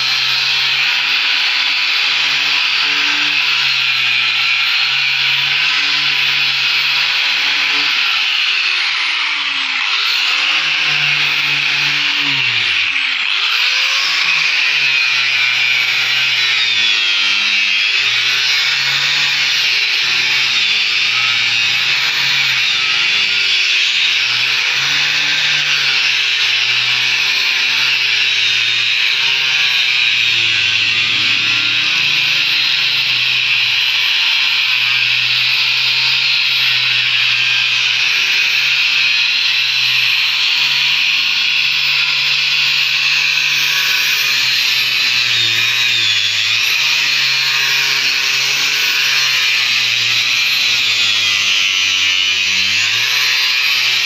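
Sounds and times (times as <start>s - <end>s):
electric disc sander on wood: 0.0s - 54.0s.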